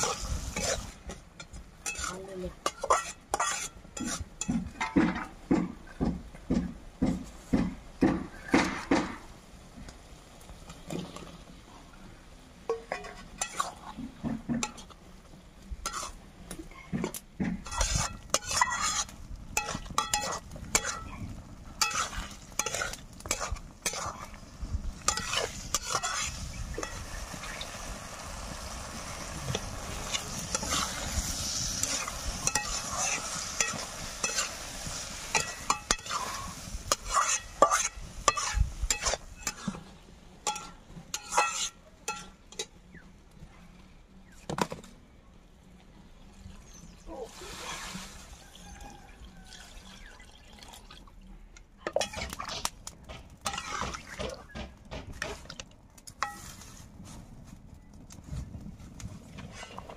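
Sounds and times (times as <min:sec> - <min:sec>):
metal spatula scraping pan: 0:00.0 - 0:05.3, 0:12.7 - 0:15.0, 0:15.8 - 0:16.2, 0:16.8 - 0:21.2, 0:21.8 - 0:24.4, 0:25.0 - 0:27.2, 0:29.5 - 0:42.7, 0:53.4 - 0:54.5, 0:56.2 - 0:56.8
potatoes frying sizzle: 0:00.0 - 0:05.4, 0:09.0 - 0:42.7.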